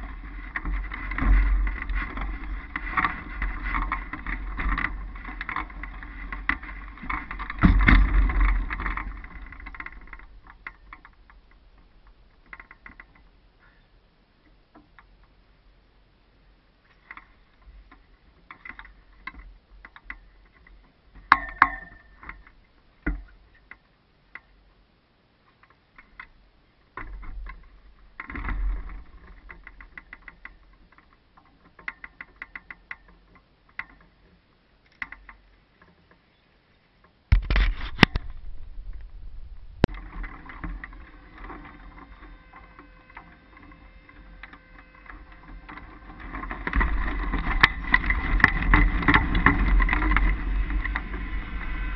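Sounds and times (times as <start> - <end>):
hang glider frame rattling: 0.0 - 15.7, 16.8 - 24.6, 25.4 - 51.9
rushing wind noise: 37.3 - 41.3, 46.8 - 51.9.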